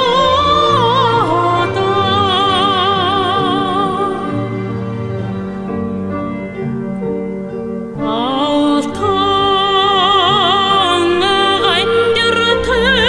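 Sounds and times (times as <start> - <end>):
woman singing with vibrato: 0.0 - 4.7, 8.0 - 13.0
sustained instrumental notes: 0.0 - 13.0.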